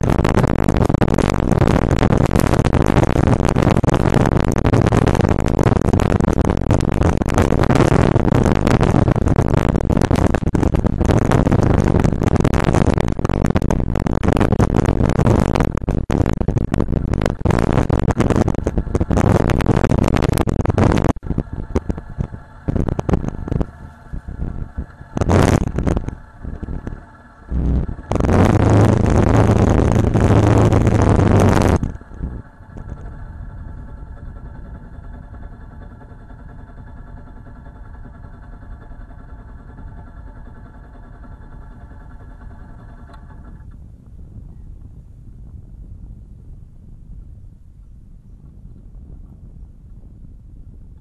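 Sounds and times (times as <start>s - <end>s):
motorcycle engine running: 0.0s - 51.0s
wind buffeting microphone: 0.0s - 51.0s.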